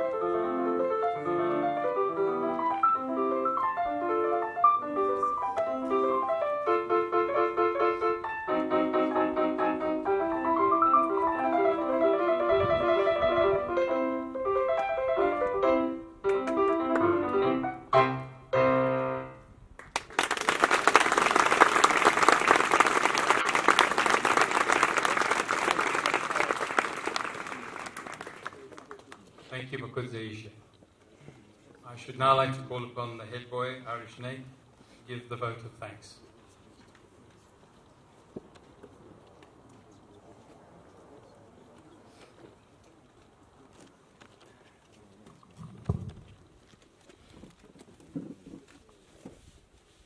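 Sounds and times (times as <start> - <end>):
electronic keyboard piano piece: 0.0 - 19.5
audience applause: 19.8 - 29.2.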